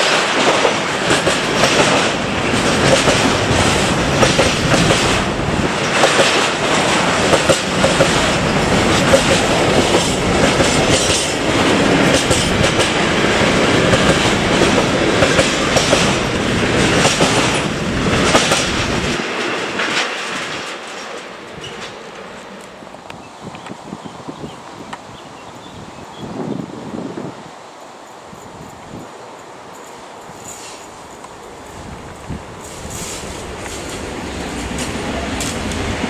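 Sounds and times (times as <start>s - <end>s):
wheels clacking over rail joints: 0.0s - 23.8s
freight train rumbling past: 0.0s - 36.0s.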